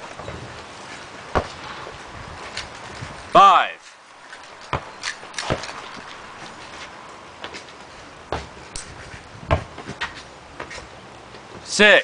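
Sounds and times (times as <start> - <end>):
ball hitting hoop: 1.3 - 1.9, 4.6 - 6.6, 9.5 - 10.0
basketball bouncing on asphalt: 1.3 - 3.1, 4.3 - 6.8, 8.3 - 10.7.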